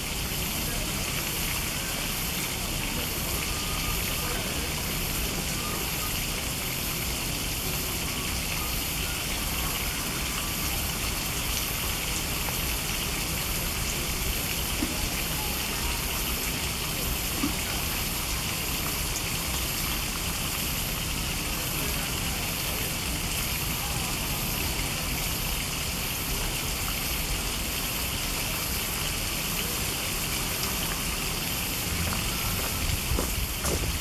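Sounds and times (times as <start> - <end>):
shallow stream rushing: 28.7 - 34.0.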